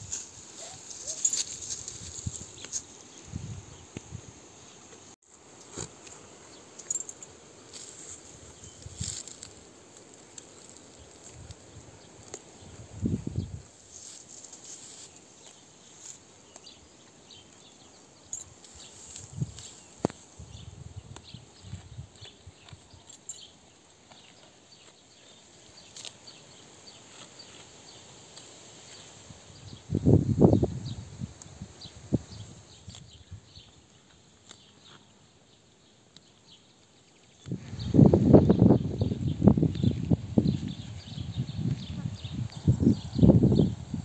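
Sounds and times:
goat tearing grass: 0:24.1 - 0:29.0.

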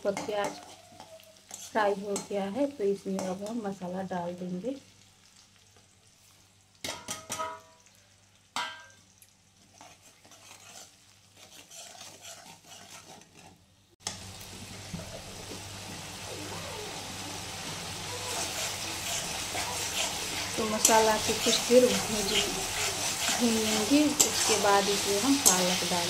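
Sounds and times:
spatula scraping pan: 0:00.0 - 0:02.3, 0:09.6 - 0:13.6, 0:17.9 - 0:26.0
spices sizzling in oil: 0:00.0 - 0:26.0
spatula clinking against metal: 0:18.3 - 0:25.9.

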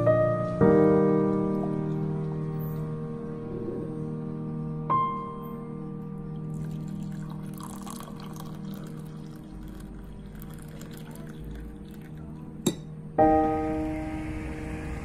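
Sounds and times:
soft piano music: 0:00.0 - 0:15.0
coffee pouring into a mug: 0:06.4 - 0:12.9.

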